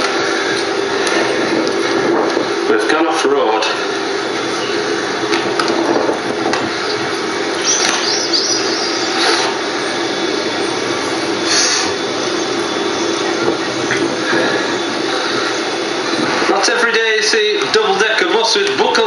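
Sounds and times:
steady rushing noise: 0.0s - 19.0s
birds chirping: 3.7s - 16.5s.

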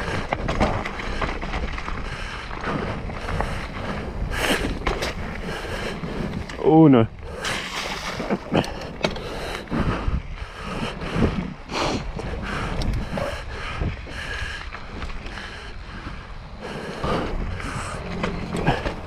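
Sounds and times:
bike knocking and rattling: 0.0s - 19.0s
tyres rumbling on dirt: 0.0s - 19.0s
wind buffeting microphone: 0.0s - 19.0s.

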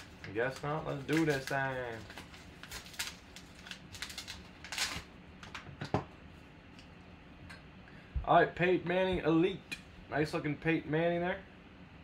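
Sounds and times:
foil wrapper crinkling: 0.0s - 5.5s.

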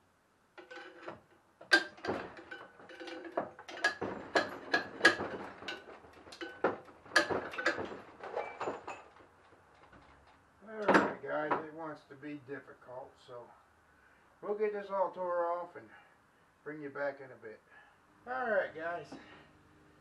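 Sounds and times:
metal tools clanking on engine: 0.6s - 10.2s.

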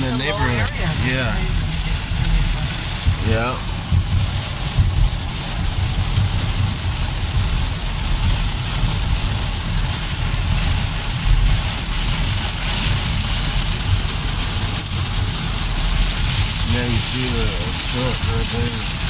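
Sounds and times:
car engine rumble: 0.0s - 19.0s
heavy rain on car windshield: 0.0s - 19.0s
tyres on wet road: 0.0s - 19.0s.

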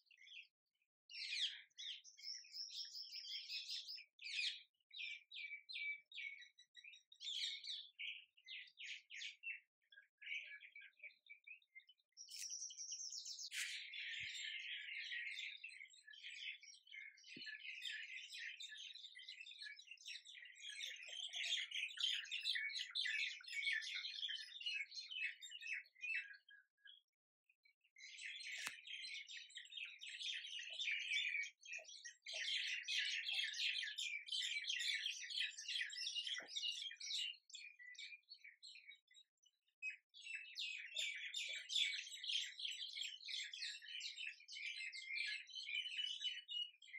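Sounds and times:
birds chirping: 1.1s - 27.1s.

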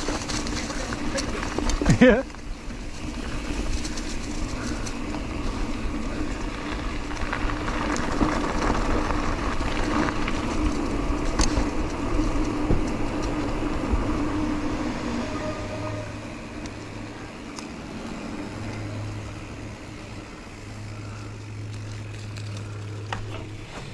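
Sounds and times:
bike tyres crunching on gravel: 0.0s - 23.9s.

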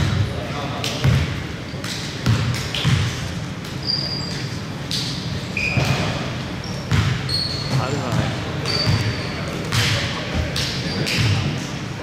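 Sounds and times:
sneakers squeaking: 0.0s - 11.8s
basketball bouncing on wooden floor: 1.0s - 1.3s, 2.2s - 3.1s, 6.9s - 10.5s.

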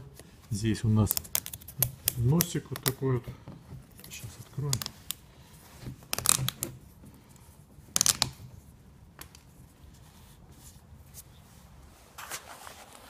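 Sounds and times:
plastic bottle cap crackling: 1.0s - 3.0s.

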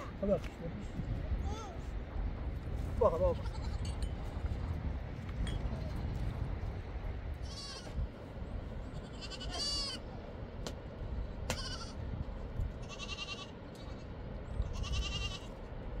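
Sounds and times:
steady low rumble: 0.0s - 16.0s
goats bleating: 3.2s - 4.0s, 7.4s - 8.0s, 8.9s - 10.1s, 11.5s - 12.0s, 12.8s - 15.5s.

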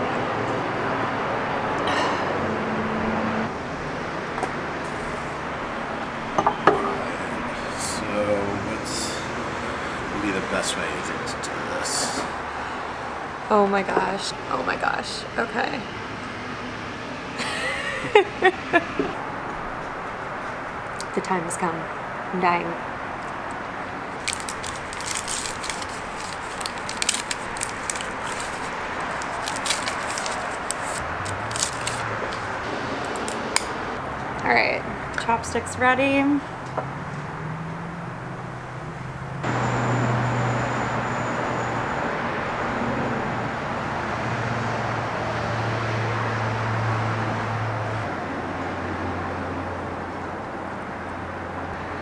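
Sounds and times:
paper wrapper crinkling and tearing: 24.1s - 33.4s.

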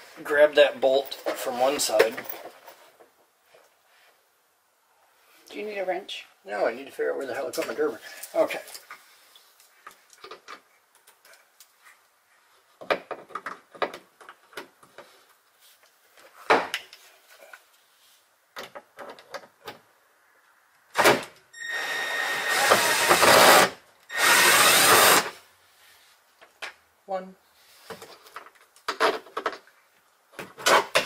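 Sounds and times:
power tool running: 21.7s - 25.4s.

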